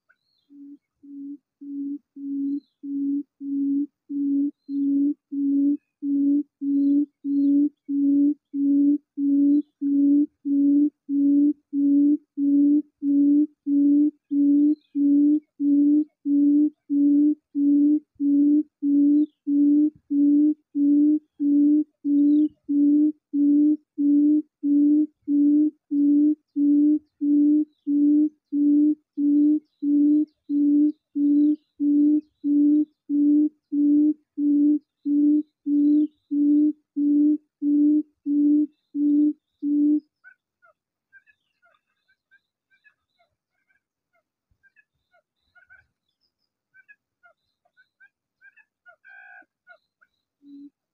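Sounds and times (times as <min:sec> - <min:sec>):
low hoot bird call: 0:00.0 - 0:46.1, 0:46.7 - 0:50.8
faint bird chirps: 0:00.0 - 0:50.9.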